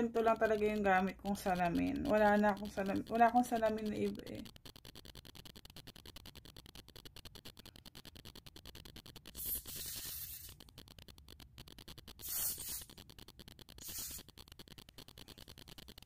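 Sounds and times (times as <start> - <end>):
pump bottle squirts: 12.2 - 13.0, 13.8 - 14.3.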